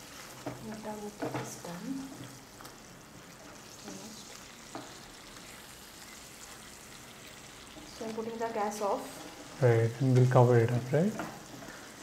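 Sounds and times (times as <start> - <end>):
soft sizzle: 0.0 - 12.0.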